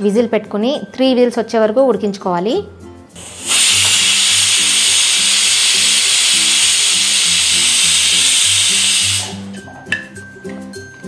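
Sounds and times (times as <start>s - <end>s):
pressure cooker steam hiss: 3.2s - 9.6s.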